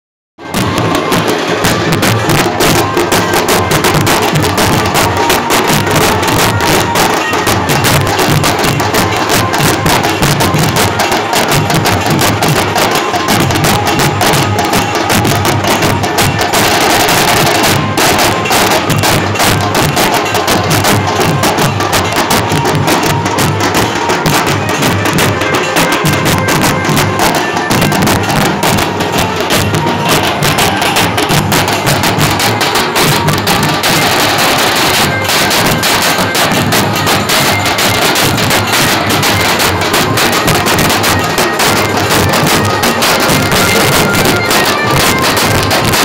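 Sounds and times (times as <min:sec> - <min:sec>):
bass drums beating: 0:00.4 - 0:10.8.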